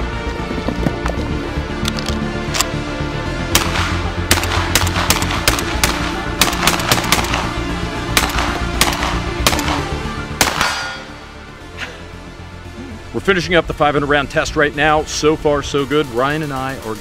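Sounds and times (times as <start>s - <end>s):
shotgun shots in rapid string: 3.5s - 11.3s.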